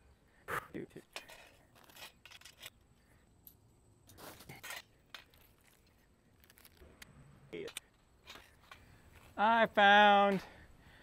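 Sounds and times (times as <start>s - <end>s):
metal tubes clinking and knocking: 0.9s - 6.7s, 7.6s - 9.3s.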